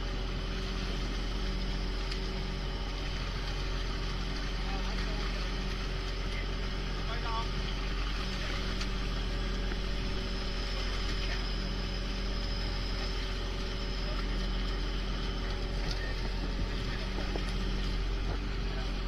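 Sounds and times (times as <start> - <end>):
boat engine running: 0.0 - 19.0
fish thrashing and splashing: 7.6 - 19.0.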